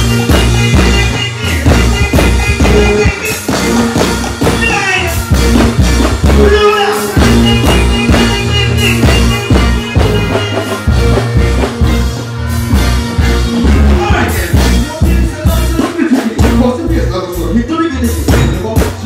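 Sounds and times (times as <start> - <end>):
heavy bass line: 0.0 - 19.0
steady drum beat: 0.0 - 19.0
voice on microphone: 4.4 - 5.4, 6.3 - 10.9, 13.8 - 19.0.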